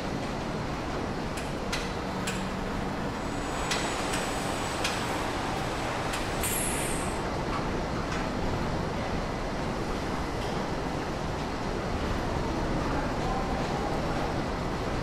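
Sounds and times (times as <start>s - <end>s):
steady machinery noise: 0.0s - 7.4s.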